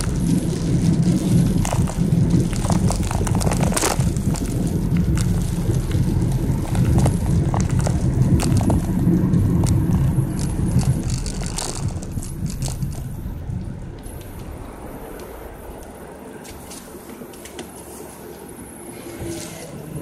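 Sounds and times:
raindrops tapping on windshield: 0.0 - 15.3
steady low rumble: 0.0 - 17.4.

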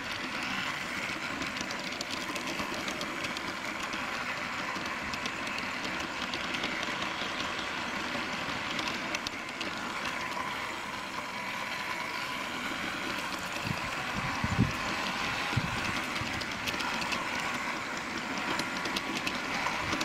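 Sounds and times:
model steam train rattling on track: 0.0 - 20.0.

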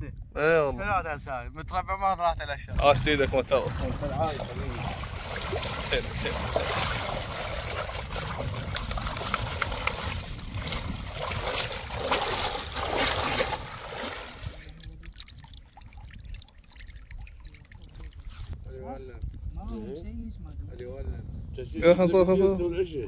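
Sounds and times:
water trickling and splashing: 2.8 - 18.6.

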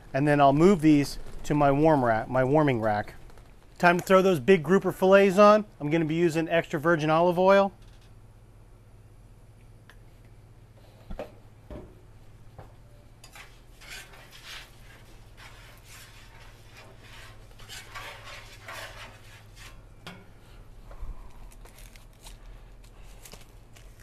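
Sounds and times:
metal spatula scraping griddle: 13.2 - 19.9.

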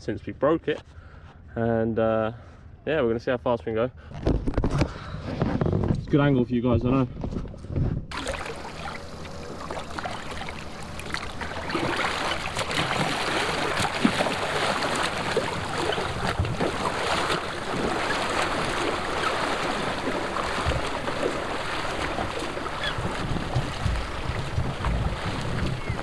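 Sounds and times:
small water splashes: 8.1 - 26.0
water rushing: 8.1 - 26.0.

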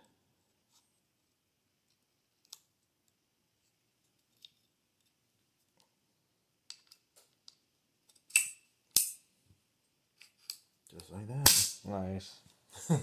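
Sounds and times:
loud sharp snap: 11.4 - 11.8.

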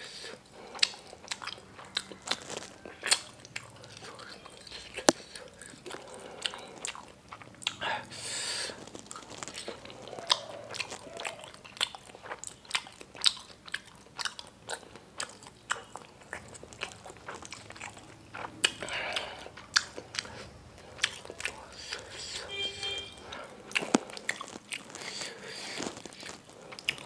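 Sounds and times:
wet chewing mouth clicks: 0.2 - 22.5, 23.2 - 27.0
breathing: 4.7 - 6.8, 7.8 - 8.8, 18.8 - 19.6, 23.2 - 24.1, 25.0 - 26.9.

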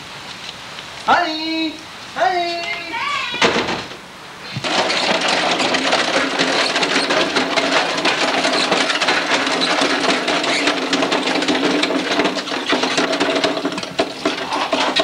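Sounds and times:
lawn mower engine running: 4.5 - 15.0.

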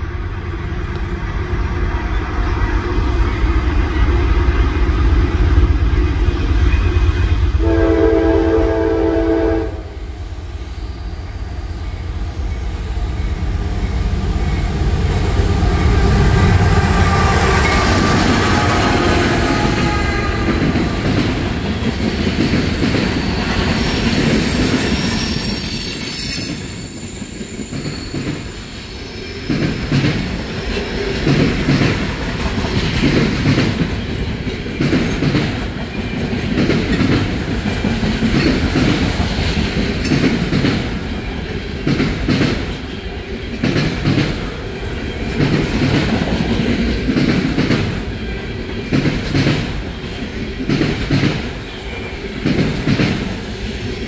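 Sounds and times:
train wheels clacking on rails: 11.1 - 54.0
high wheel squeal: 23.0 - 29.5.

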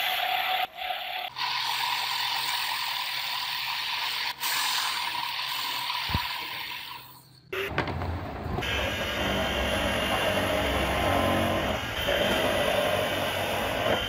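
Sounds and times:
electric motor drone: 8.6 - 14.0
wood lathe whirring hiss: 8.6 - 14.0.

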